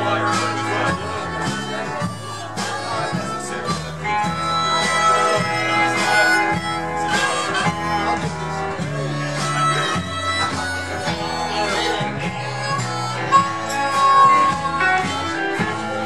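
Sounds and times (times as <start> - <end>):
bass line: 0.0 - 16.0
drums: 0.0 - 16.0
harmonica: 0.0 - 16.0
electric guitar: 4.0 - 16.0.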